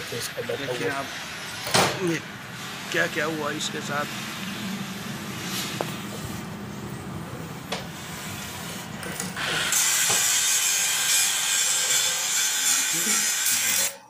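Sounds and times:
tool cutting metal rasp: 0:08.0 - 0:14.0.

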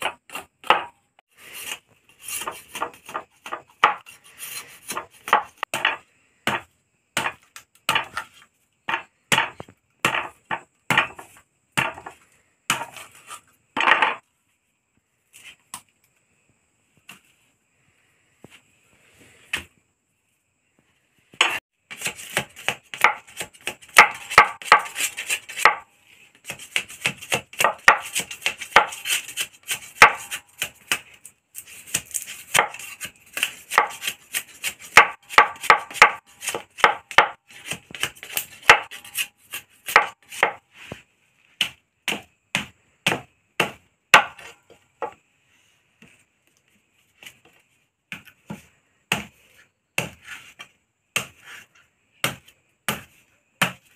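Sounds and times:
knife chopping bamboo: 0:00.0 - 0:13.4, 0:21.4 - 0:40.6, 0:41.6 - 0:45.2, 0:48.1 - 0:53.9.

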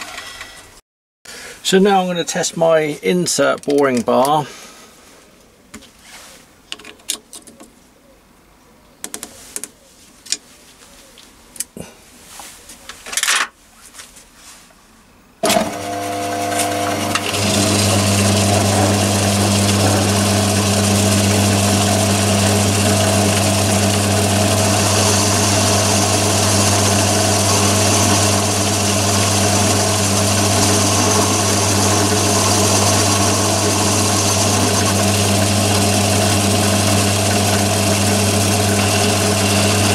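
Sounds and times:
lathe motor humming: 0:15.4 - 0:39.9.

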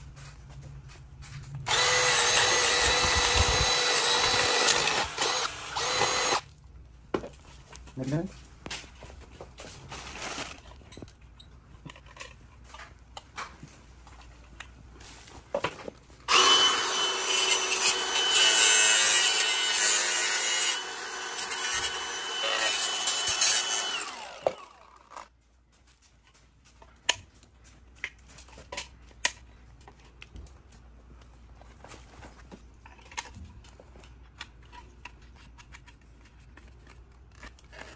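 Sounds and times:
cut-off tool cutting plastic: 0:01.7 - 0:06.5, 0:16.3 - 0:25.3, 0:34.4 - 0:37.9.

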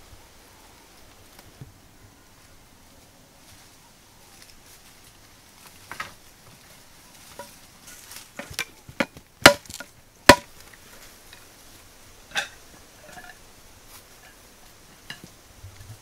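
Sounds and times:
sharp chopping knocks: 0:09.4 - 0:10.5.

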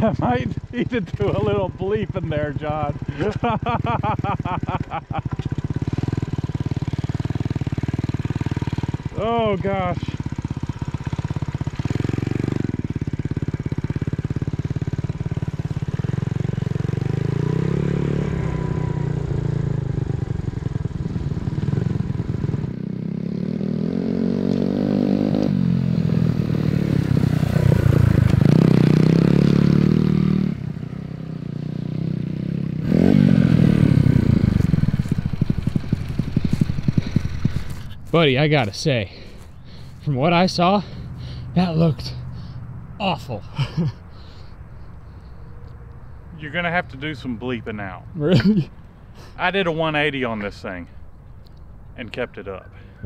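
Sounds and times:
small motorbike engine revving: 0:00.0 - 0:38.1.

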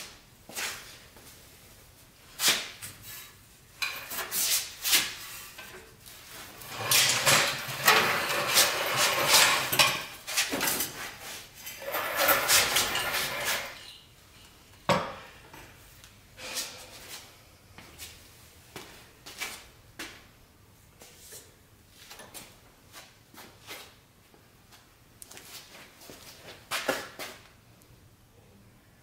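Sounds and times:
metal clanks and scrapes: 0:03.0 - 0:04.6, 0:06.5 - 0:14.0
floor jack rolling on concrete: 0:06.5 - 0:13.8.

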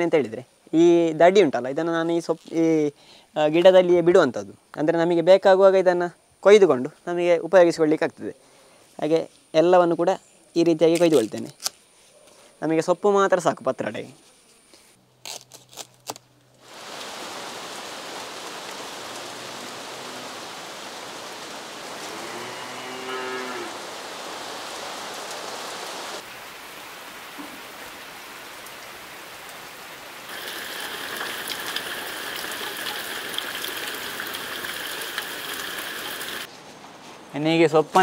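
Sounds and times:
rain falling on leaves: 0:16.0 - 0:36.5
cow mooing: 0:22.0 - 0:23.8.

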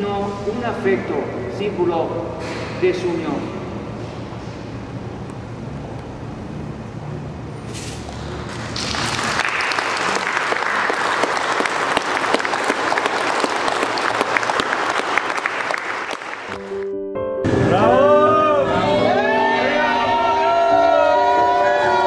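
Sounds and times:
congregation applauding: 0:08.4 - 0:16.9.

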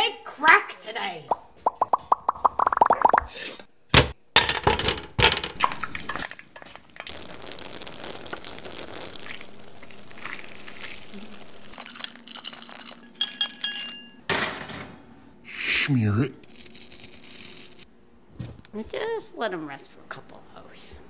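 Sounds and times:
toffee sizzling in pan: 0:05.8 - 0:12.2
metal pan clinking: 0:13.2 - 0:14.2.

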